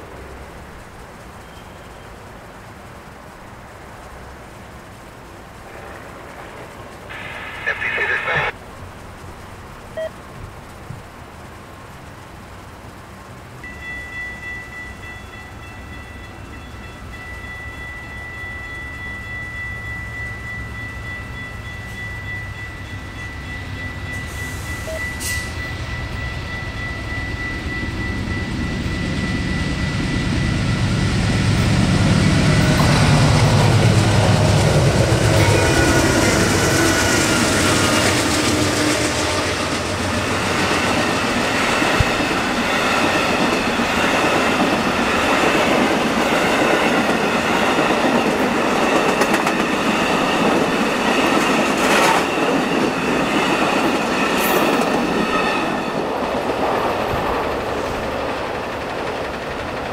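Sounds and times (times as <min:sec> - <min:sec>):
diesel locomotive engine rumble: 0:00.0 - 0:59.9
train wheels rushing on rails: 0:00.0 - 0:59.9
high ringing tone: 0:13.6 - 0:56.0.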